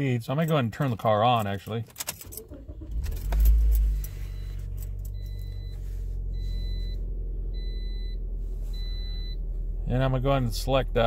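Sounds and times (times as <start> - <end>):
key turning: 1.4 - 2.5
car engine starting and idling: 1.9 - 11.0.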